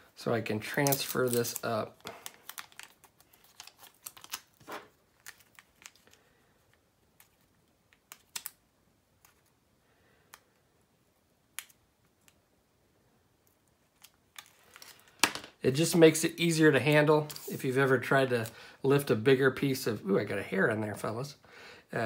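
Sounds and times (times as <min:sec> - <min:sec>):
tape crackling as it is peeled: 0:00.7 - 0:08.6, 0:13.5 - 0:15.2.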